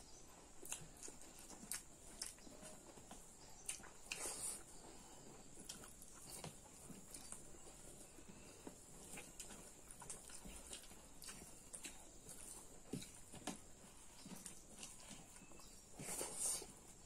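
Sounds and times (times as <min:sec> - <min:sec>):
people chewing food: 0:00.0 - 0:17.0.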